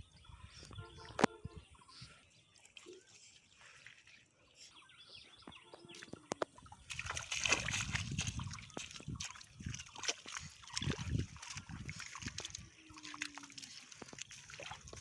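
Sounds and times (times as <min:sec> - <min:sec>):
water and mud splashing: 0:00.3 - 0:04.7, 0:05.6 - 0:15.0
bare feet wading: 0:05.8 - 0:15.0.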